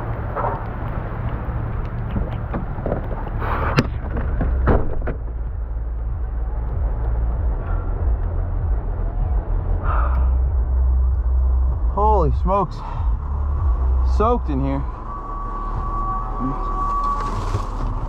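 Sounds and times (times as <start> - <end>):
vehicle engine rumble: 0.0 - 18.0.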